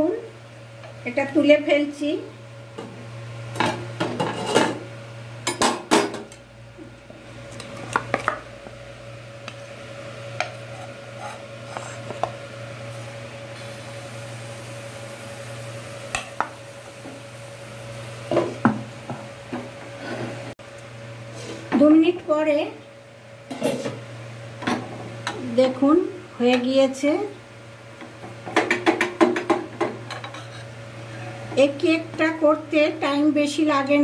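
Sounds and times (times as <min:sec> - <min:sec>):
utensils clattering on a pan: 0:03.6 - 0:04.8, 0:28.5 - 0:30.7.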